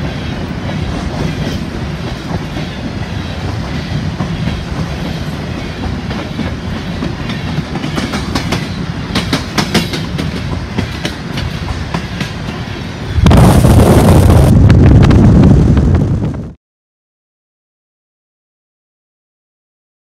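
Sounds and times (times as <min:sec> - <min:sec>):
train wheels rumbling: 0:00.0 - 0:16.5
wheels clicking over rail joints: 0:03.4 - 0:12.7.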